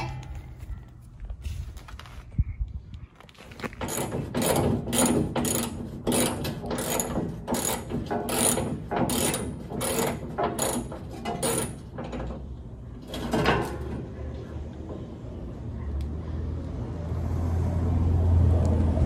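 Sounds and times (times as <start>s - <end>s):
ratchet wrench clicking: 3.9s - 11.7s.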